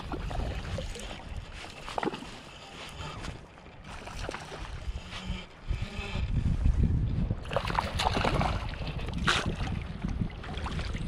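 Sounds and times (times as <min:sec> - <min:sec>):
wind rumble on microphone: 0:00.0 - 0:11.0.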